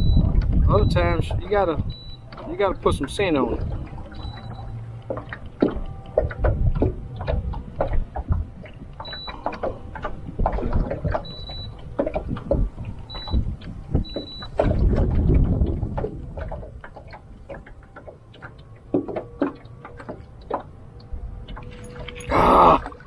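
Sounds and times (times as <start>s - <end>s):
wind buffeting microphone: 0.0s - 19.8s
water slapping boat hull: 0.0s - 23.0s
short high electronic beeps: 4.2s - 4.6s.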